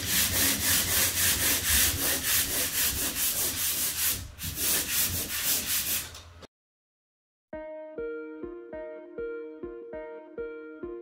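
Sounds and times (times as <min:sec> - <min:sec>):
sanding screen scraping drywall: 0:00.0 - 0:06.2.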